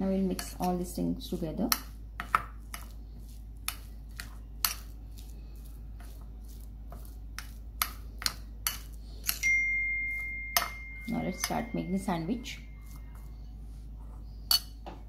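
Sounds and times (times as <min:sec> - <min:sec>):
spoon scraping ceramic bowl: 0:01.7 - 0:09.5, 0:12.4 - 0:13.6
high ringing tone: 0:09.3 - 0:13.6.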